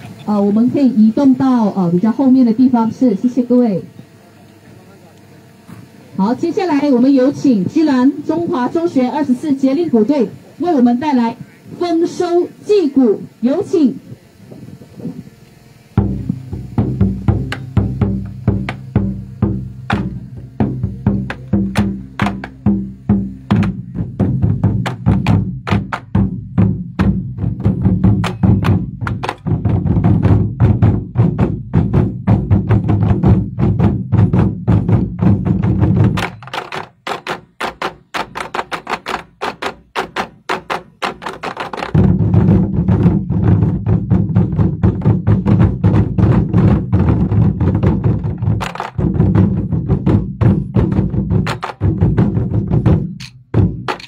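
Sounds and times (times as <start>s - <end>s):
large drums beaten in unison: 16.0s - 54.0s.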